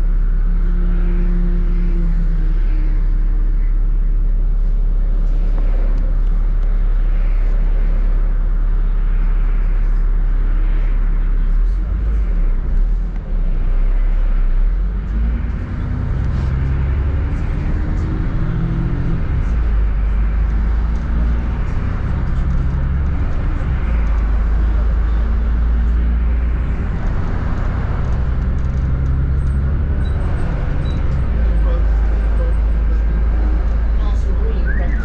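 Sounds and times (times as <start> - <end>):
bus engine and road rumble: 0.0 - 35.0
rising hum: 14.8 - 34.0.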